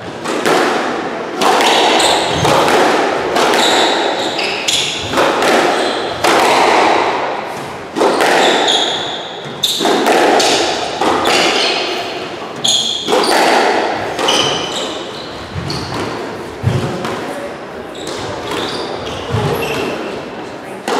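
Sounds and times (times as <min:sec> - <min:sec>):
squash ball hitting rackets and walls: 0:00.0 - 0:20.9
shoes squeaking on wooden floor: 0:03.4 - 0:06.2, 0:07.5 - 0:10.0, 0:11.2 - 0:16.9, 0:17.9 - 0:20.2.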